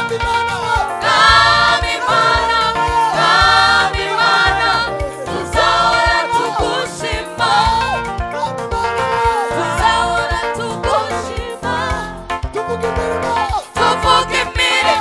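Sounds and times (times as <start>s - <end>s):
band accompaniment: 0.0s - 15.0s
bass and drums beat: 0.0s - 15.0s
choir singing: 1.0s - 8.1s, 9.5s - 12.2s, 13.8s - 15.0s.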